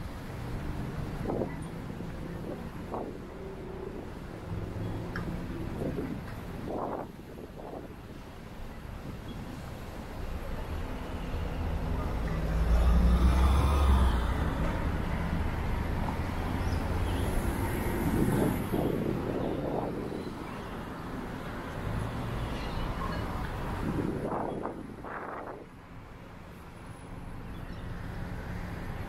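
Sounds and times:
steady traffic noise: 0.0 - 29.0
vehicle engine passing: 11.7 - 19.1.

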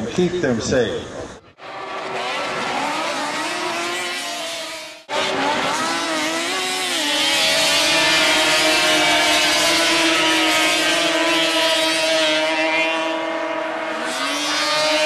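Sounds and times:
snowmobile engines revving: 1.6 - 15.0.

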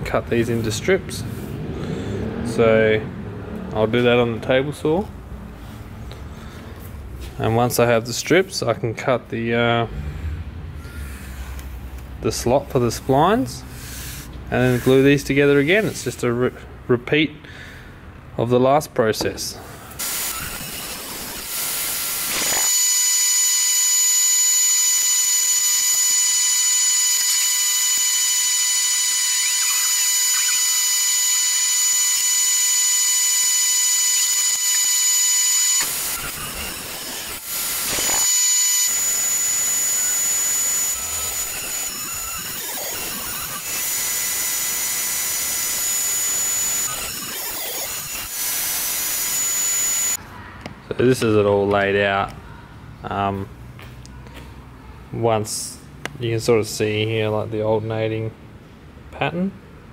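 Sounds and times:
table saw whining: 13.8 - 16.0, 20.0 - 50.2.

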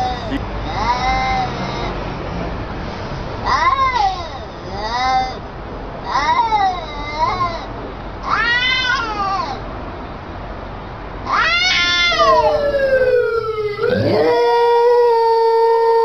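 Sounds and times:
cats yowling: 0.0 - 1.2, 8.2 - 9.6, 11.3 - 16.0
steady held tones: 12.1 - 14.7.

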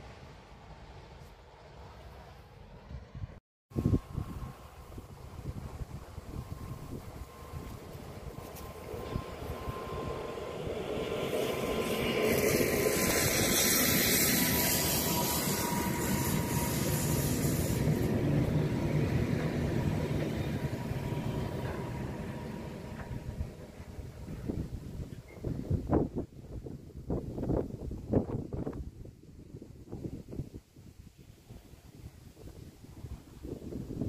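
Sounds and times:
diesel locomotive passing: 0.0 - 26.8
train wheels rumbling on rails: 3.8 - 26.6.

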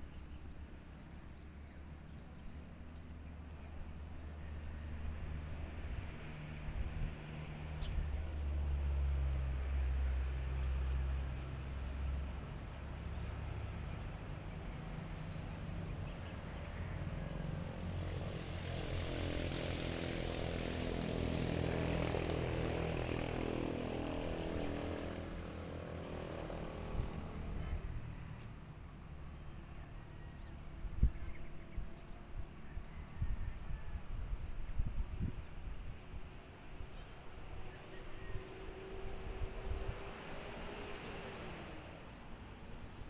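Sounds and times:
distant aircraft engine droning: 0.0 - 43.0
wind rumble on microphone: 3.9 - 12.3, 17.7 - 28.2, 30.4 - 43.0.

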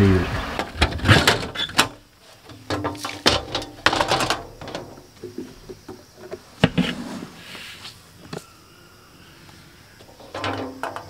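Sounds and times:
metal drum lid clanking: 0.6 - 5.4, 10.1 - 11.0.

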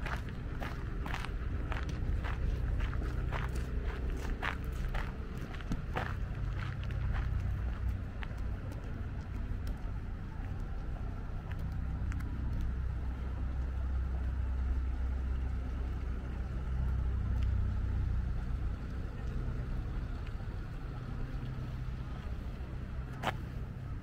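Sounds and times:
vehicle engine rumbling: 0.0 - 24.0
light clicks: 6.8 - 12.8.

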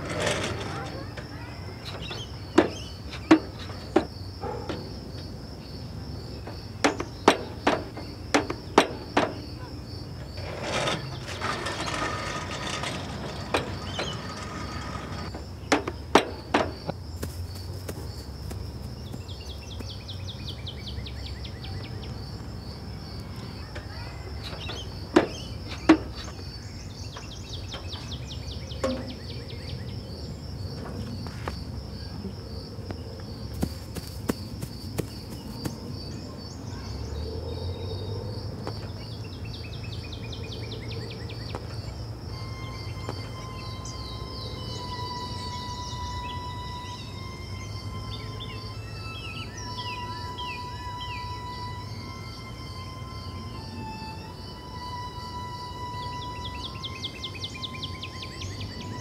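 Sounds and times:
insect chirping: 0.0 - 59.0
sharp knocks: 6.8 - 9.5.

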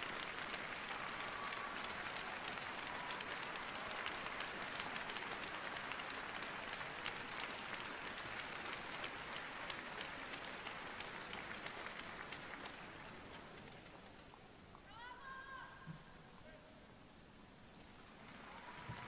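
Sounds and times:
crowd applauding: 0.0 - 13.7, 18.2 - 19.0.

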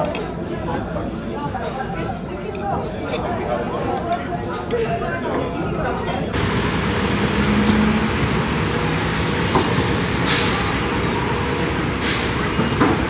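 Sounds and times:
vehicle rumble: 6.3 - 13.0.

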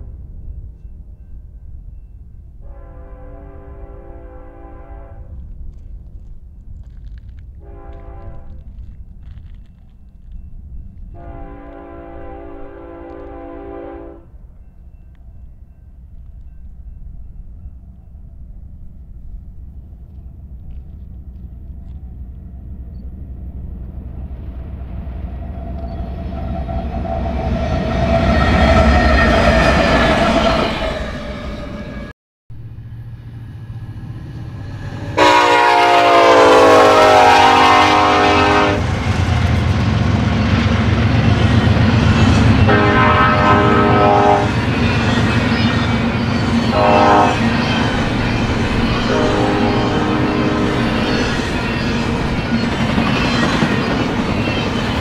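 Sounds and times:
freight train rumbling: 0.0 - 55.0
locomotive horn blasts: 2.6 - 5.4, 7.6 - 8.7, 11.2 - 14.4, 35.1 - 38.8, 42.6 - 44.6, 46.7 - 47.5, 49.0 - 51.0.

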